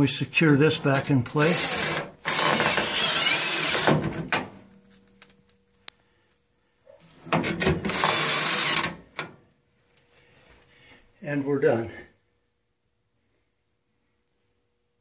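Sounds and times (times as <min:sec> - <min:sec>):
power drill driving screws into metal: 0:01.4 - 0:04.5, 0:07.4 - 0:09.3.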